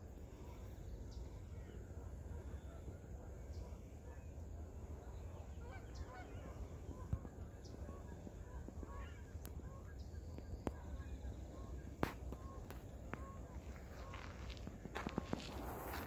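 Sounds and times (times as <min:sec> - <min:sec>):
wind rumble on microphone: 0:00.0 - 0:16.0.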